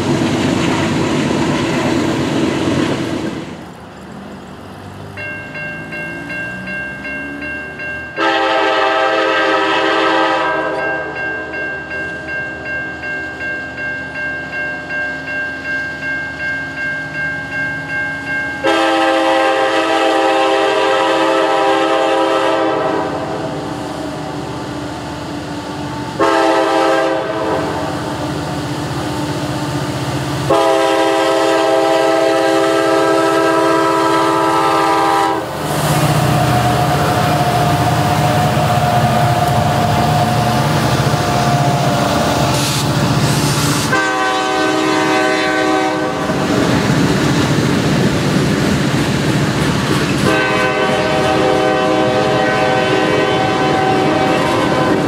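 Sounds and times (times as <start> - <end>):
locomotive engines rumbling: 0.0 - 55.0
locomotive horn blasts: 8.2 - 11.2, 18.6 - 23.6, 26.2 - 28.0, 30.5 - 35.6, 43.9 - 46.4, 50.2 - 55.0
freight cars rolling: 27.2 - 44.0.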